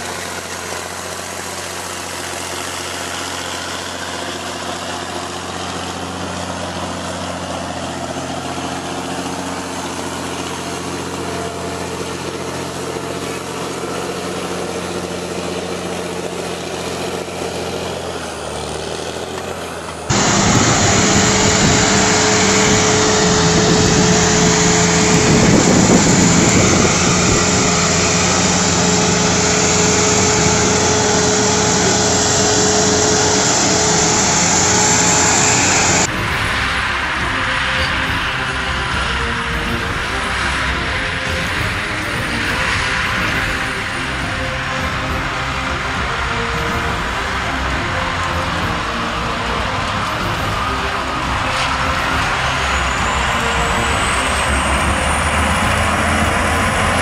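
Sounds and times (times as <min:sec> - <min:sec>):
heavy tractor engines labouring: 0:00.0 - 0:57.0
tractor diesel engine under load: 0:00.0 - 0:57.0
steady whine: 0:19.1 - 0:57.0.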